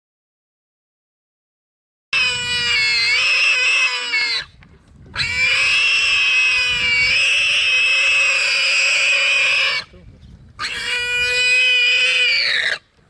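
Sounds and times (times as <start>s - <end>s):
warthog screaming: 2.2s - 4.5s, 5.2s - 9.9s, 10.6s - 12.8s.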